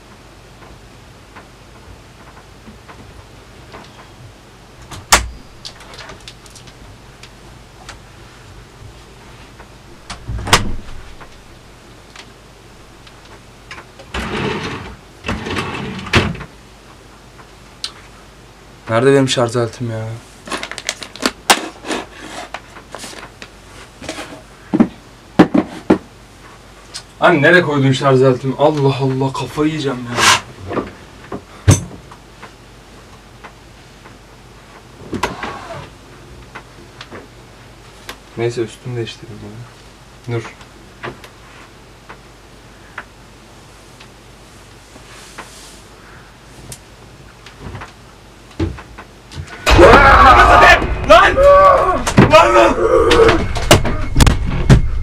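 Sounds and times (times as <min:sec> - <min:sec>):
rustling and handling noise: 0:00.0 - 0:18.2, 0:20.1 - 0:27.2, 0:36.1 - 0:52.6
door banging shut: 0:04.9 - 0:05.6, 0:10.0 - 0:11.3, 0:49.6 - 0:55.0
drawer scraping slide: 0:14.1 - 0:16.4.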